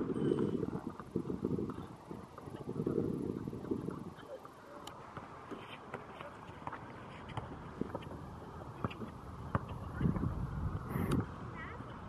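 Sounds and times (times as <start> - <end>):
faint voices: 0.0 - 12.0
basketball bouncing on concrete: 8.8 - 10.3.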